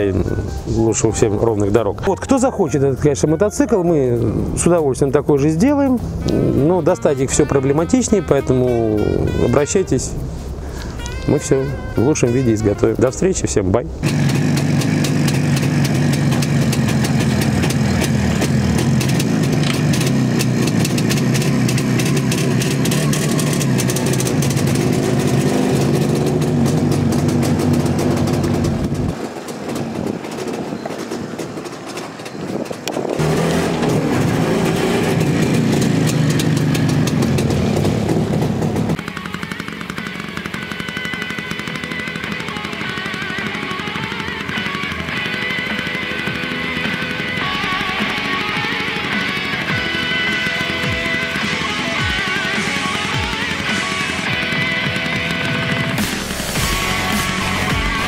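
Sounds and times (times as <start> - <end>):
music with electric guitar: 0.0 - 4.6, 5.9 - 12.8, 39.0 - 58.0
two-stroke motorcycle engine running: 0.0 - 58.0.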